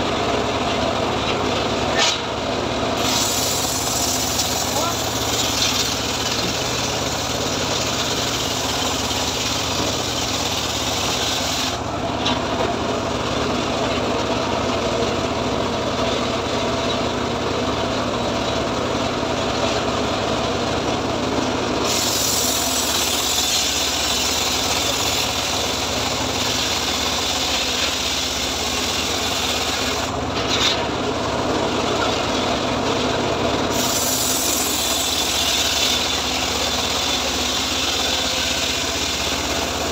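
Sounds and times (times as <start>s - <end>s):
engine drone: 0.0s - 39.9s
saw blade rasping through wood: 3.0s - 11.8s, 21.8s - 30.8s, 33.7s - 39.9s.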